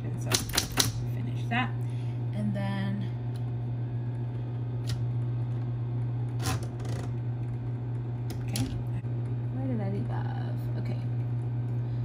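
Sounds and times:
typewriter motor humming: 0:00.2 - 0:01.0, 0:06.3 - 0:07.2.

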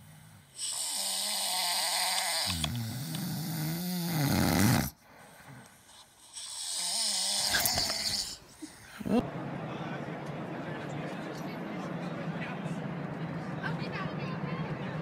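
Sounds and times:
animal rasping snore: 0:00.0 - 0:08.4.

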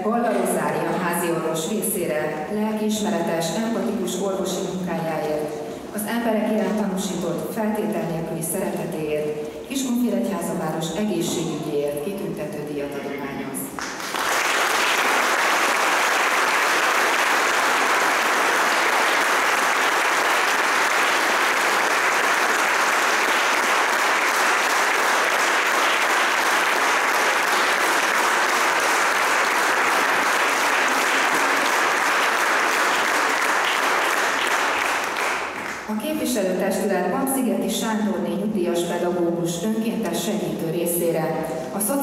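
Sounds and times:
audience applauding: 0:13.8 - 0:35.9.

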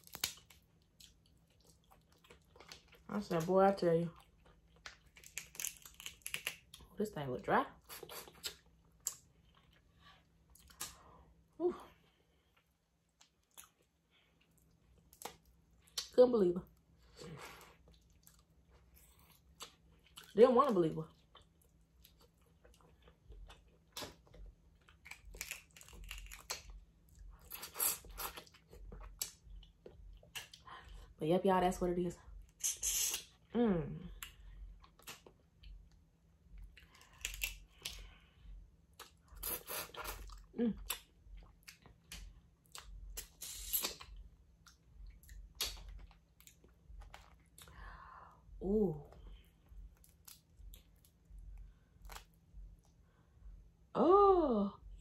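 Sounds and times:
person chewing seafood: 0:00.0 - 0:03.0, 0:04.2 - 0:06.8, 0:21.2 - 0:30.6, 0:34.2 - 0:48.0, 0:49.6 - 0:53.0
wet chewing and lip smacks: 0:07.9 - 0:09.9, 0:17.8 - 0:20.3, 0:34.2 - 0:38.1, 0:38.9 - 0:47.8
wet smacks and crunches: 0:40.9 - 0:47.7.

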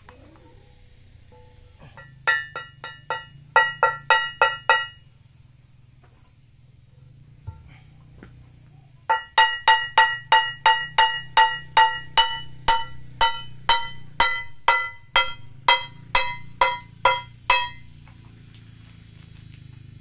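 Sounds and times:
hammer clinking on stone: 0:02.0 - 0:05.0, 0:09.1 - 0:19.8.

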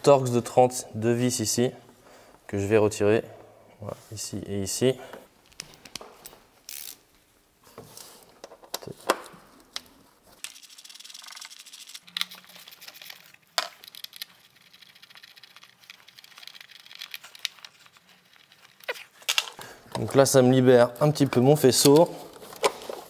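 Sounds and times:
tools and screws clicking: 0:05.5 - 0:07.0
plastic parts rattling: 0:10.4 - 0:20.2.

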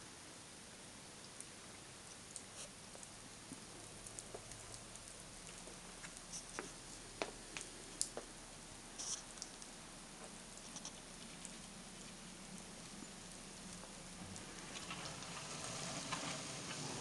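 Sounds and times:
steady hiss: 0:00.0 - 0:17.0
meltwater drips pattering: 0:00.1 - 0:17.0
light ticks: 0:02.0 - 0:08.3.

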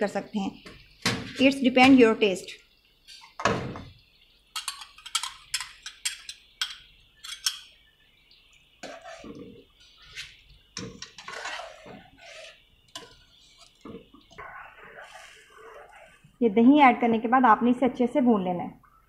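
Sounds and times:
utensils clinking: 0:04.6 - 0:07.7
metal spoon scraping pan: 0:08.8 - 0:16.3.

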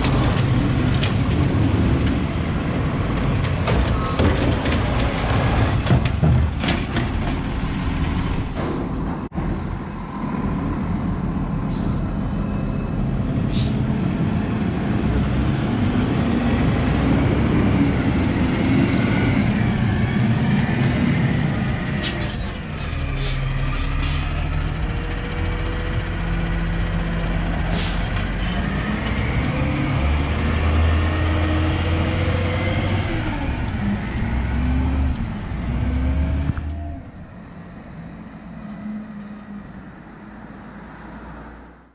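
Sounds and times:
garbage truck diesel engine: 0:00.0 - 0:40.5
air brake hisses: 0:27.7 - 0:28.1.

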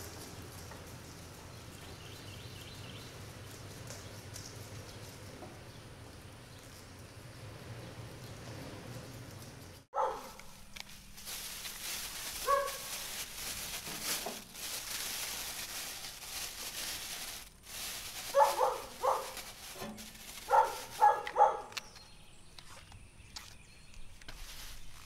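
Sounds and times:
dog barking: 0:09.9 - 0:10.4, 0:12.4 - 0:12.9, 0:18.3 - 0:19.4, 0:20.5 - 0:21.8
plastic bag rustling: 0:09.9 - 0:21.9, 0:24.3 - 0:25.0.

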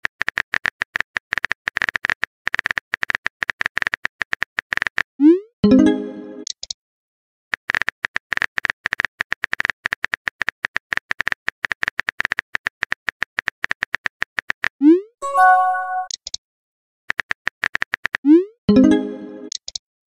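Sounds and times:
rising bloop and chime alert: 0:05.6 - 0:06.4, 0:15.2 - 0:16.1, 0:18.7 - 0:19.5.

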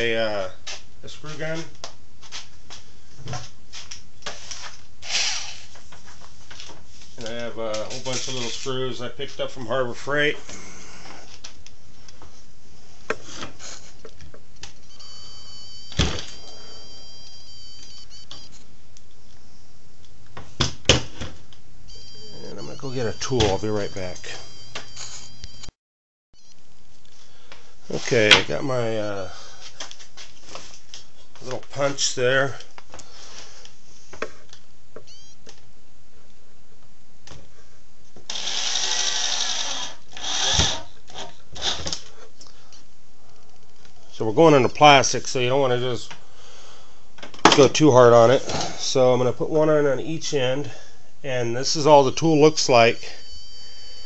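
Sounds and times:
electric drill motor whining: 0:38.3 - 0:42.0.

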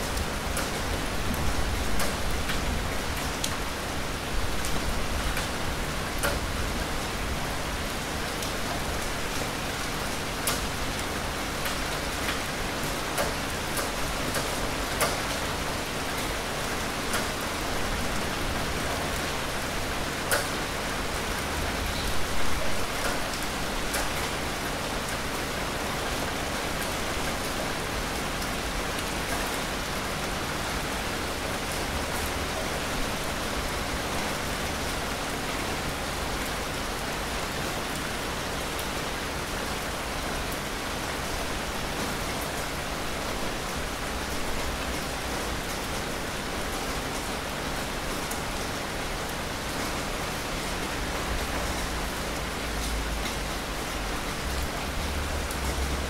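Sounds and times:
steady rain: 0:00.0 - 0:56.0
raindrops ticking: 0:10.4 - 0:16.3, 0:22.8 - 0:24.6.

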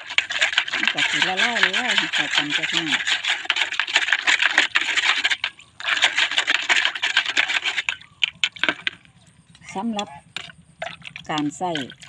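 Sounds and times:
plastic scoop scraping a basin: 0:00.0 - 0:09.1.

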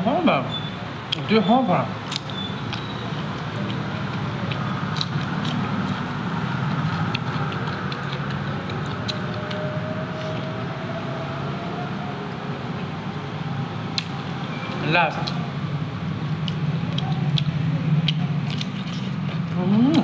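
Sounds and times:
chewing and mouth clicks: 0:02.0 - 0:10.4, 0:14.0 - 0:15.4, 0:16.3 - 0:20.0.

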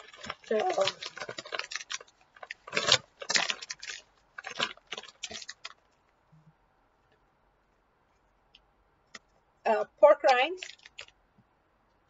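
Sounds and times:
snack bag crinkling: 0:00.0 - 0:05.9, 0:10.3 - 0:11.2.

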